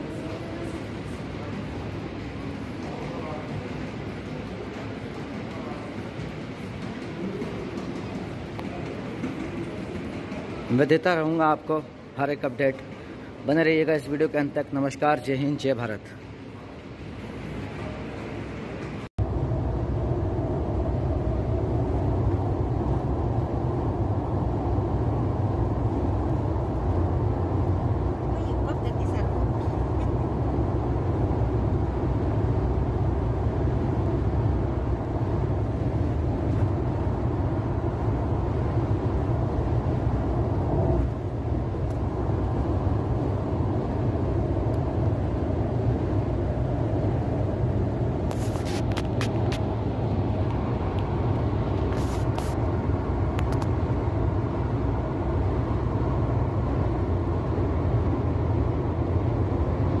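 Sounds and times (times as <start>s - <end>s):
car cabin road and engine noise: 19.1s - 60.0s.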